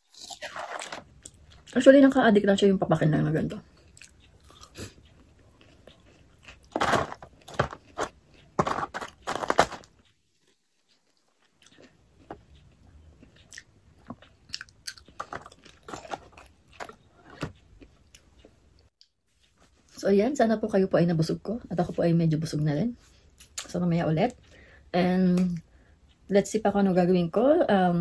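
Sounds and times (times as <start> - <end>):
crunchy chewing: 0.0 - 1.8, 3.7 - 18.6.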